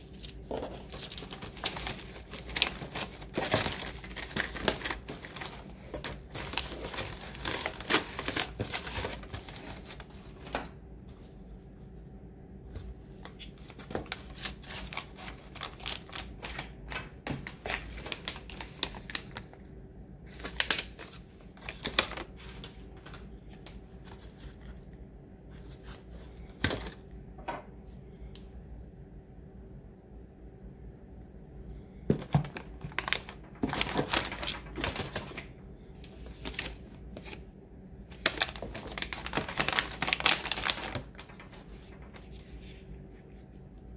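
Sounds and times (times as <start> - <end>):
plastic wrap crinkling: 0.0 - 10.8, 13.2 - 19.6, 20.3 - 24.8, 32.1 - 37.4, 38.1 - 43.4
faint steady hum: 0.0 - 43.9.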